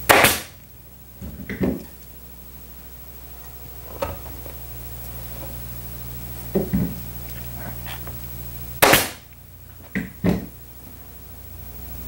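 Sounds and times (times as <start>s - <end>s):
staple gun firing: 8.8s - 9.2s.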